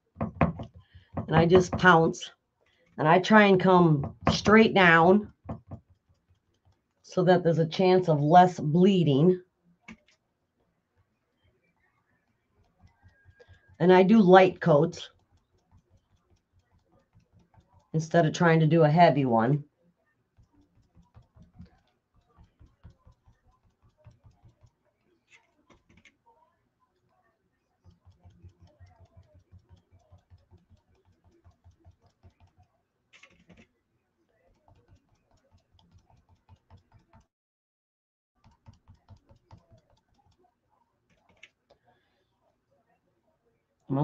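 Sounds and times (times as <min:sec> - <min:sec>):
sponge tapping on wood: 0:00.0 - 0:02.0, 0:05.3 - 0:06.8, 0:20.4 - 0:24.8
sponge dabbing taps: 0:00.0 - 0:02.2, 0:03.2 - 0:07.0, 0:12.2 - 0:18.5, 0:20.3 - 0:26.2, 0:27.7 - 0:33.6, 0:34.4 - 0:37.3, 0:38.4 - 0:41.5.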